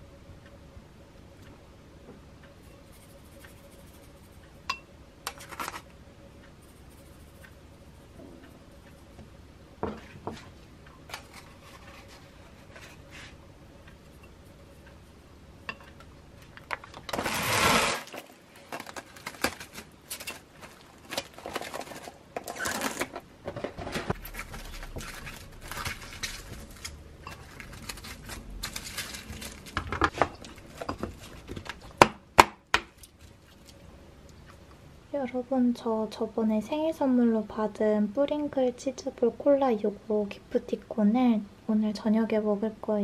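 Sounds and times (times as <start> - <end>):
plastic cling wrap crinkling: 16.8 - 23.2, 24.2 - 31.8.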